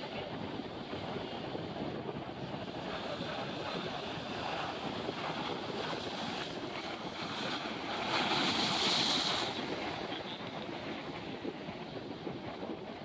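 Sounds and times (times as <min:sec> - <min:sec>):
wind buffeting microphone: 0:00.0 - 0:13.0
ocean surf against boulders: 0:02.4 - 0:11.3
wave splashing over rocks: 0:04.6 - 0:10.3.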